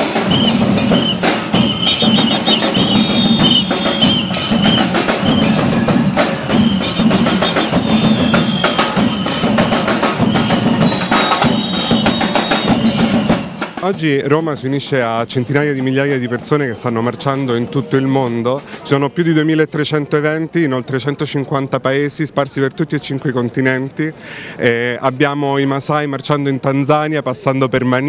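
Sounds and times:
fast dense drumming: 0.0 - 14.4
short repeated high notes: 0.1 - 13.8.

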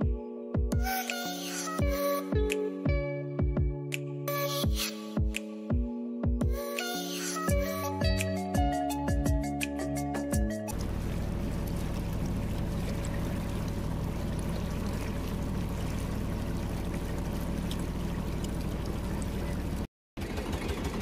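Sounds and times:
motorboat engine humming: 10.7 - 21.0
water splashing along hull: 10.7 - 21.0.

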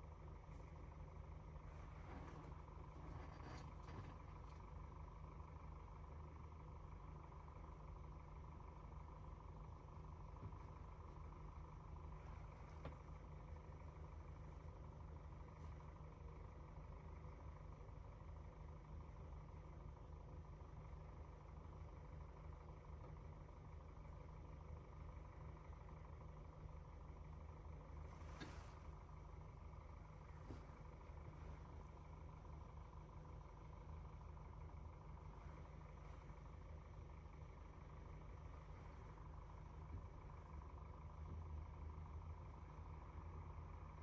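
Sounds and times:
diesel engine idling: 0.0 - 44.0.

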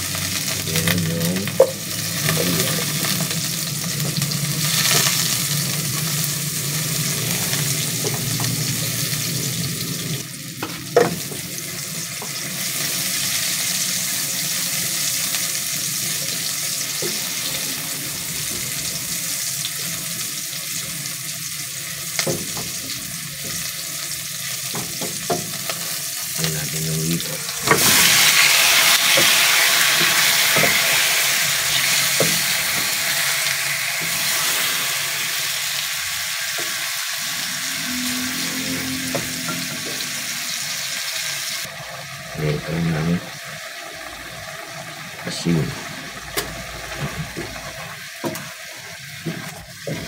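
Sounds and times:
fish sizzling in hot oil: 0.0 - 50.0
onion sizzling in hot oil: 0.0 - 50.0.

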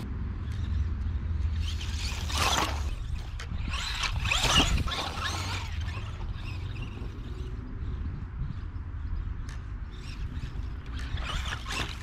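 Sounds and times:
toy truck electric motor whining: 1.5 - 7.6, 9.9 - 12.0.

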